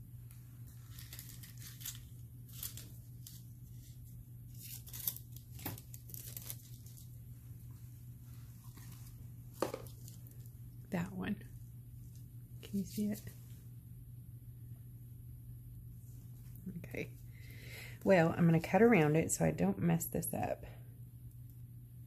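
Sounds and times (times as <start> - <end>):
faint low hum: 0.0 - 22.0
foil sheets crinkling: 0.7 - 7.2.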